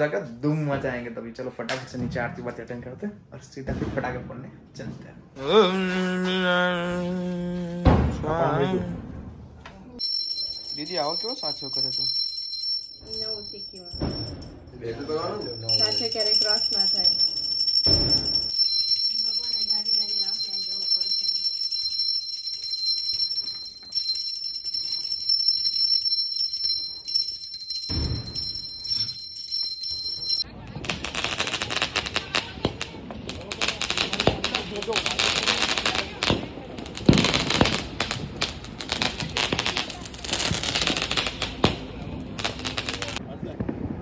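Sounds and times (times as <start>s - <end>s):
fireworks cracks and bangs: 3.6s - 5.0s, 7.8s - 8.3s, 8.9s - 44.0s
small brass hand bell ringing: 10.0s - 30.5s.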